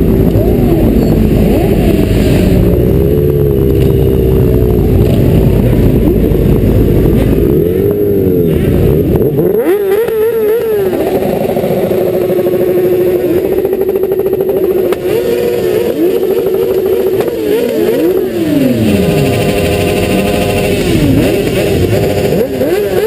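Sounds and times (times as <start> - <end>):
wind rumble on microphone: 0.0 - 9.6
motorcycle engines revving: 0.0 - 23.0.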